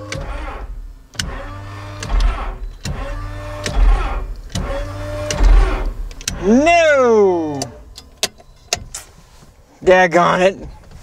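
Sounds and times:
aircraft engine starter whining: 0.0s - 6.7s.

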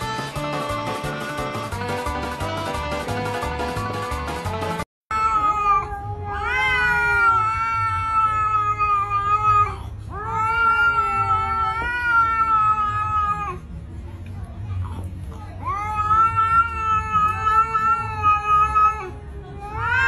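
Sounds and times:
music: 0.0s - 4.9s
kitten yowling: 5.1s - 13.6s, 15.6s - 20.0s.

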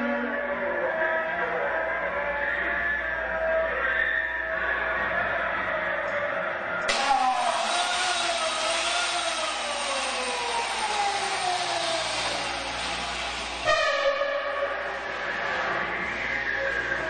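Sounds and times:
chainsaw engine running: 7.0s - 13.6s.

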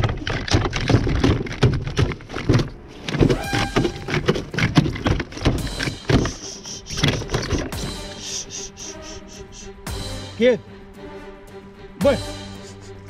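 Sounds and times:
knocks and rattles on plastic kayak: 0.0s - 7.8s.

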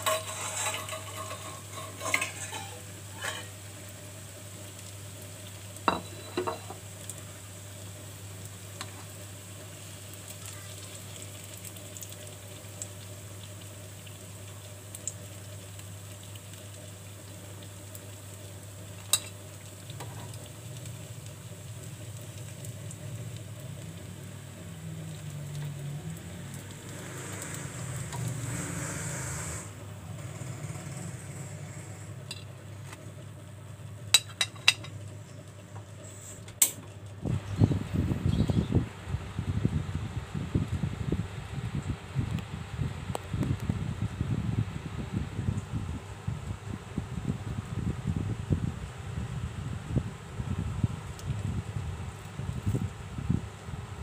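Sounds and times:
metal spoon scraping and clinking: 0.0s - 3.5s
oil sizzling in a frying pan: 0.0s - 42.0s.

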